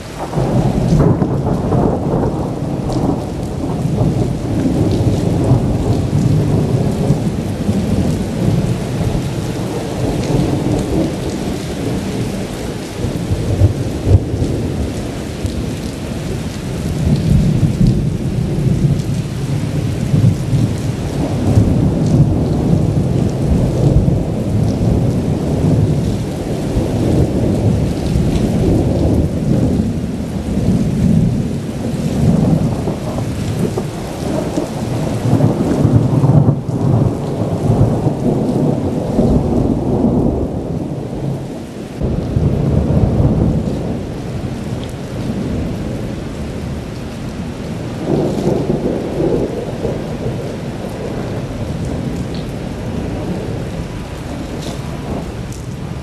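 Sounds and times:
steady rain: 0.0 - 56.0
thunder rumbling: 0.0 - 56.0.

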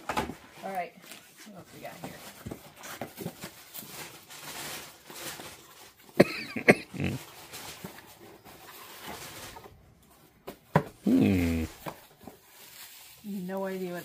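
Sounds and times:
low voiced grunt: 6.6 - 7.2, 11.0 - 11.8.

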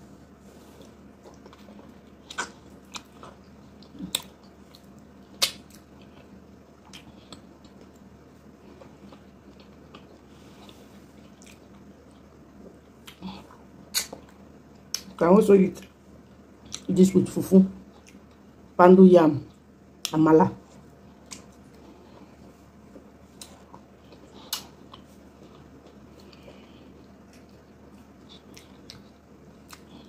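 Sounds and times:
wet mouth clicks and smacks: 5.4 - 5.8, 13.9 - 14.2.

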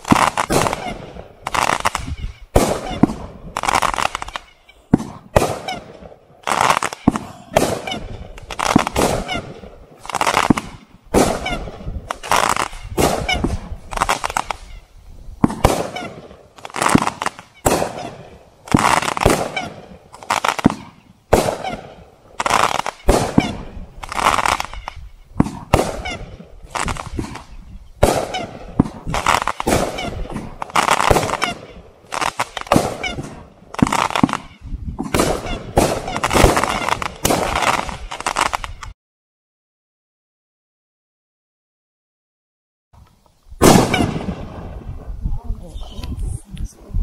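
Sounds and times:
fireworks shots and aerial bursts: 0.0 - 39.0, 43.0 - 47.0.

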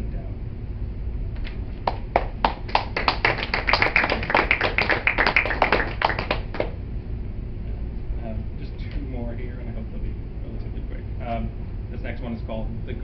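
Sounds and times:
small audience applauding: 1.8 - 6.8.

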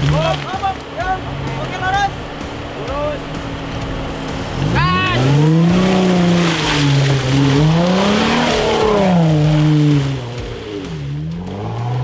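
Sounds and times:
car engine revving: 0.0 - 12.0
tyres churning mud: 0.0 - 12.0.

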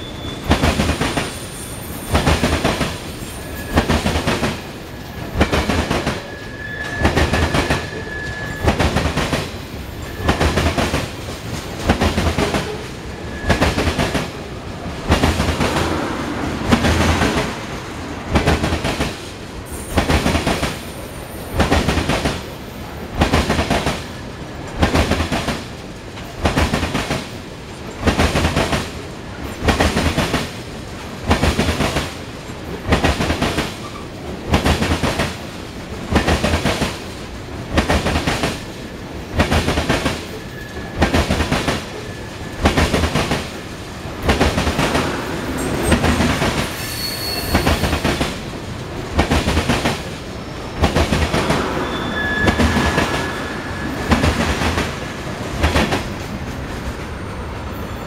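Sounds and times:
train rumble: 0.0 - 58.0
train wheels clacking over rail joint: 2.1 - 14.4, 44.2 - 50.1.

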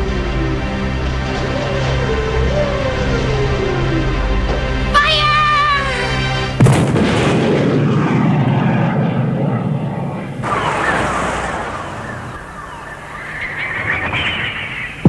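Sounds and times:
rising whine: 0.0 - 15.0
cannon blast rumble: 6.6 - 15.0.

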